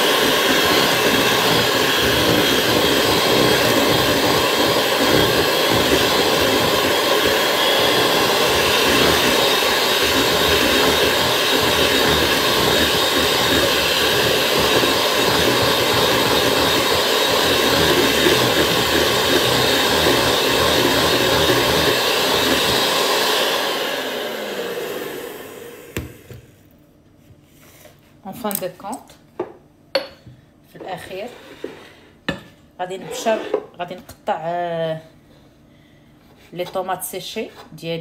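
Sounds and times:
mixer motor winding down: 0.0 - 26.4
electric hand mixer whisking: 0.0 - 26.5.

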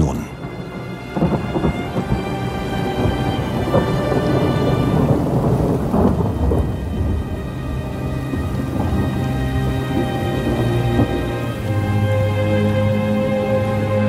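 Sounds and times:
dark sustained music chords: 0.0 - 14.0
distant artillery barrage rumbling: 0.1 - 13.3.

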